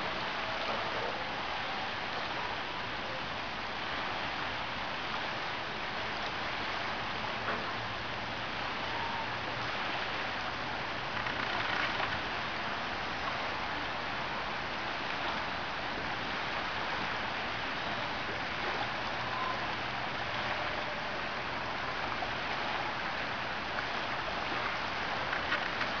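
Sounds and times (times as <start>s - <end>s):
lake waves rushing and splashing: 0.0s - 26.0s.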